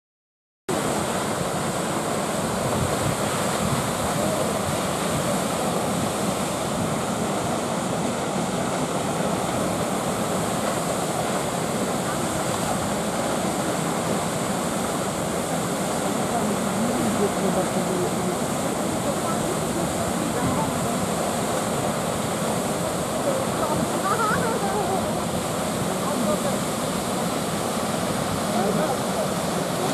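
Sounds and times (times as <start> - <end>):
waterfall rushing: 0.7 - 29.9.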